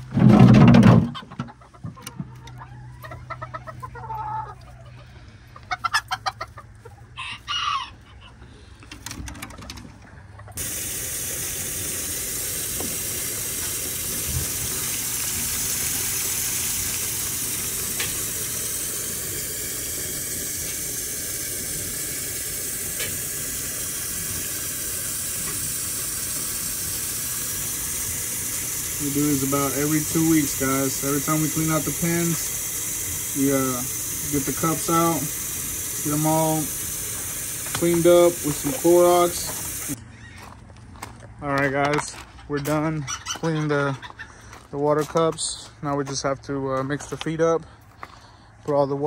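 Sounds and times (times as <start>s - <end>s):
chickens clucking: 0.2s - 10.7s, 42.6s - 44.7s
rooster crowing: 7.2s - 8.1s
running water: 10.6s - 40.0s.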